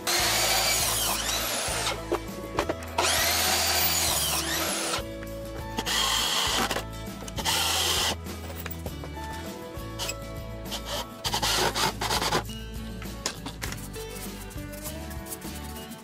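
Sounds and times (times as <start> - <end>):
cordless drill driving screws: 0.0 - 2.1, 2.9 - 5.1, 5.8 - 8.2, 10.0 - 12.4
miter saw cutting wood: 0.0 - 2.1, 2.9 - 5.0.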